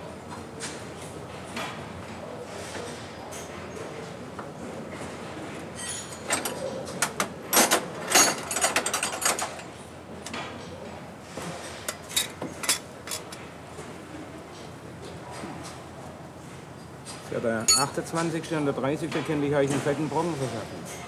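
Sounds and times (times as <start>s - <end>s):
metal tools clanking on truck underside: 17.7s - 18.0s.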